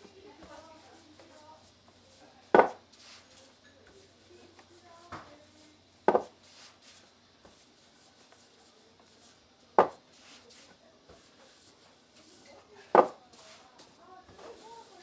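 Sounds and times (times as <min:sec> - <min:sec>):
hands rubbing dough: 0:00.0 - 0:15.0
sharp wooden knock: 0:06.1 - 0:06.3.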